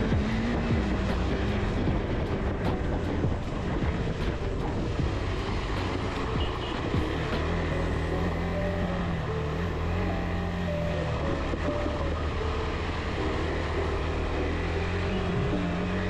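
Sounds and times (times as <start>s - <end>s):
wind noise: 0.0s - 7.2s
motorcycle engine running: 0.0s - 16.0s.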